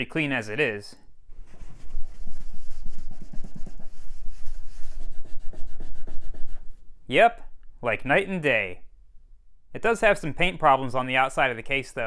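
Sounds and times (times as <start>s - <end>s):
cloth rubbing on plastic: 1.3s - 6.8s.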